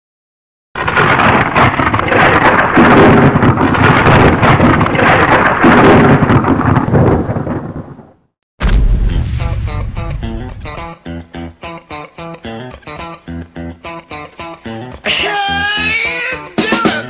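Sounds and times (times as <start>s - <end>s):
loud rushing noise with rumbling: 0.8s - 7.9s, 8.6s - 10.9s.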